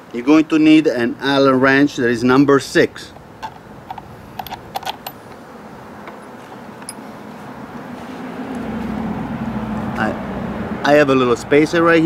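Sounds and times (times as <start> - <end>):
passing vehicle engine hum: 3.0 - 12.0
small metallic clicks: 3.1 - 5.4, 6.0 - 7.0.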